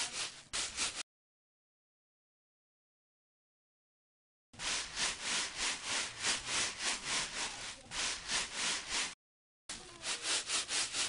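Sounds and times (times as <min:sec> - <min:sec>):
scouring pad scrubbing dishes: 0:04.6 - 0:11.0.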